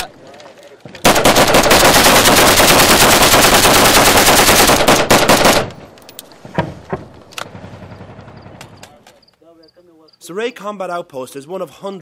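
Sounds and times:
automatic gunfire: 1.0 - 5.8.

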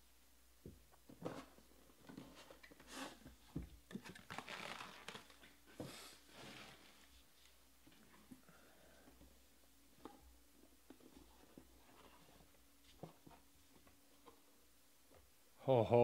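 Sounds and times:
plastic wrap rustling: 4.0 - 5.6.

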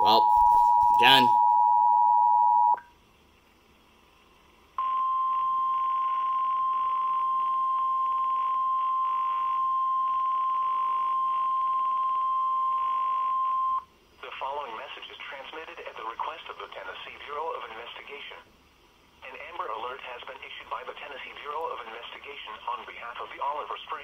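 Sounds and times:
steady high alert tone: 0.0 - 2.8
two-tone alert signal: 0.0 - 2.8.

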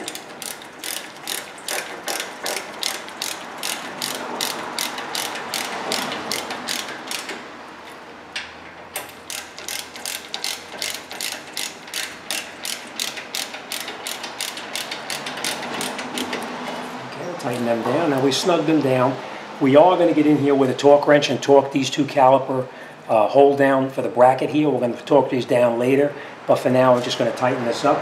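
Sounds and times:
ratchet wrench clicking: 0.0 - 7.4, 9.0 - 16.4.

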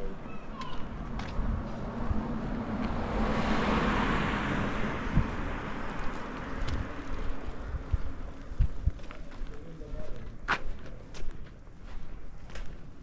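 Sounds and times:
car driving past: 0.8 - 8.3.

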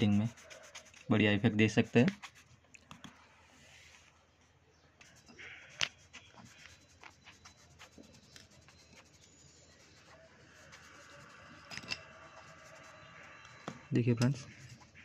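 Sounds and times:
fingertip rubbing on paper: 0.0 - 2.5, 5.8 - 13.3, 14.4 - 15.0.

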